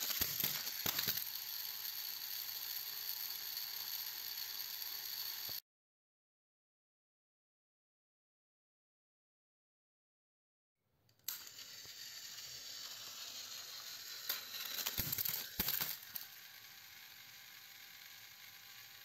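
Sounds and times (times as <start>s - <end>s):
toy train motors whirring: 0.0s - 5.6s, 11.1s - 19.0s
toys clattering and knocking: 0.0s - 5.6s, 11.1s - 19.0s.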